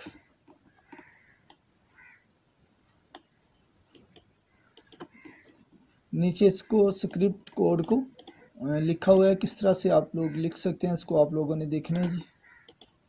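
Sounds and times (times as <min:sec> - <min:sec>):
faint clicks: 0:00.5 - 0:01.6, 0:02.9 - 0:03.3, 0:03.9 - 0:05.6, 0:07.0 - 0:08.4, 0:11.9 - 0:13.0.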